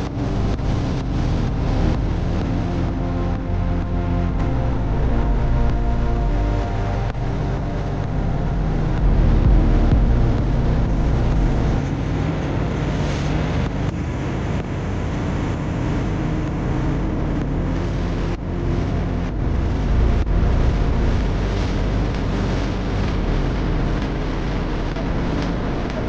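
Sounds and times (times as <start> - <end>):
heavy truck running: 0.0 - 14.0
vehicle rumbling on rough road: 0.0 - 26.0.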